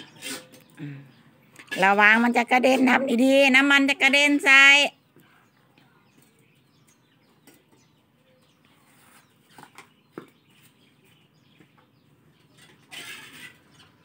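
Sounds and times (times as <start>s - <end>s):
spatula scraping in a wok: 0.0s - 0.7s, 12.4s - 14.0s.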